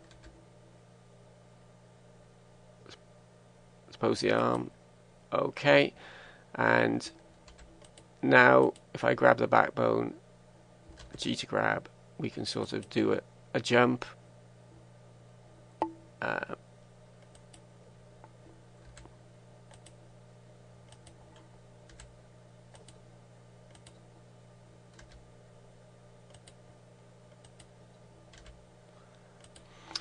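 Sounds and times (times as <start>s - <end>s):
low mains hum: 0.0s - 30.0s.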